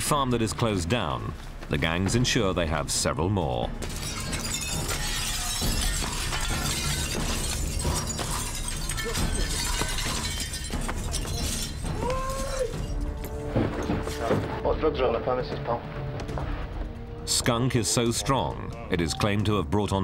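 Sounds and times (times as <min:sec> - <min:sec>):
glass shattering: 0:03.7 - 0:14.3.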